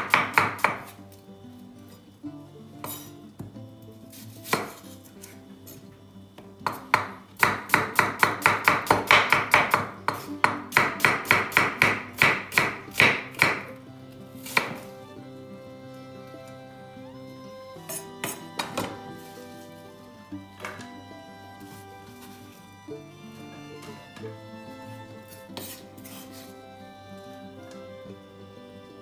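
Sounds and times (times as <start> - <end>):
knife slicing onion on wooden board: 0.0 - 1.0, 2.8 - 3.2, 4.1 - 5.4, 6.6 - 13.8, 14.4 - 15.0, 17.8 - 19.3, 25.3 - 26.6
faint background music: 0.0 - 29.0.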